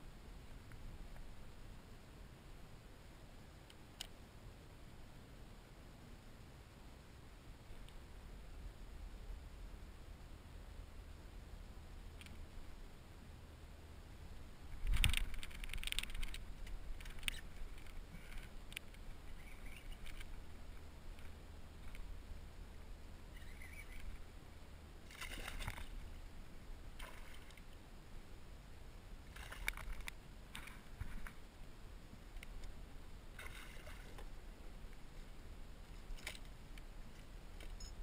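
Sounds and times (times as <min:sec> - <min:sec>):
splashes and knocks: 0:25.1 - 0:26.0, 0:27.0 - 0:27.6, 0:33.4 - 0:34.3.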